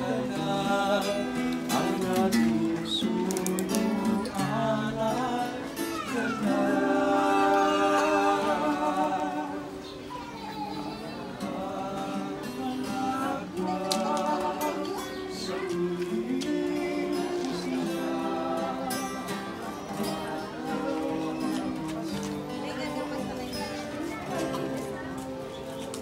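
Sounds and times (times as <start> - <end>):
group singing carols: 0.0 - 10.2, 10.8 - 26.0
acoustic guitar: 0.0 - 26.0.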